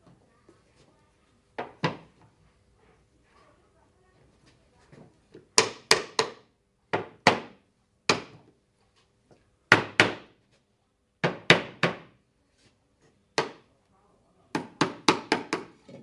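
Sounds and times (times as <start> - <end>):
hammer tapping wood: 14.6 - 15.7.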